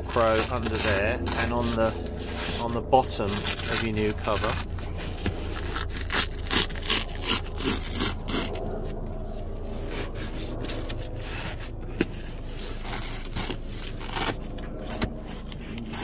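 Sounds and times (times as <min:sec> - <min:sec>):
hand rubbing cloth cushion: 0:00.0 - 0:16.0.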